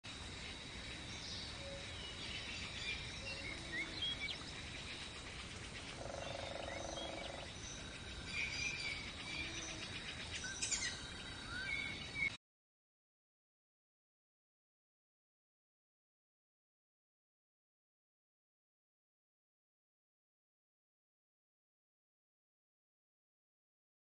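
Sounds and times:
background hiss: 0.0 - 12.3
birds chirping: 0.4 - 12.4.

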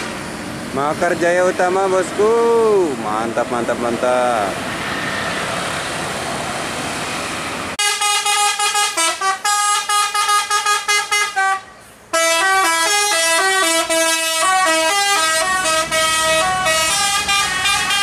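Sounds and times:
road and engine rumble: 0.0 - 18.0
bus horn playing a tune: 7.8 - 18.0.

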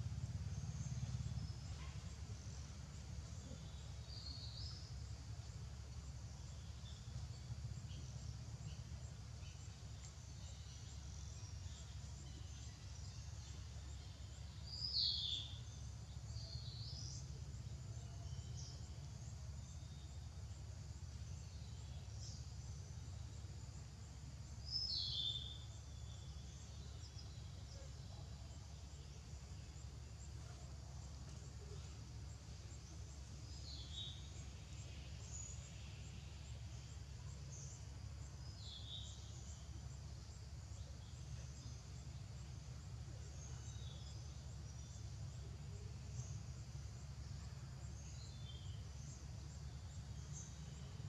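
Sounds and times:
steady low rumble: 0.0 - 14.9.

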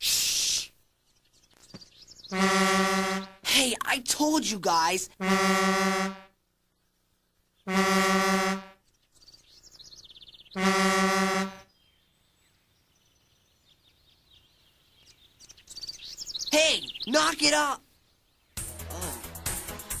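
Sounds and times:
faint bird chirps: 0.0 - 3.5, 8.7 - 19.0
truck horn honking: 2.3 - 3.4, 5.2 - 6.3, 7.7 - 8.8, 10.6 - 11.6.

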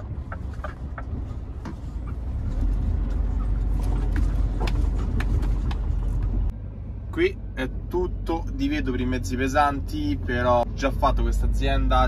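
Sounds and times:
cab rattle clicks and knocks: 0.0 - 6.5
truck engine and road rumble: 0.0 - 12.0.

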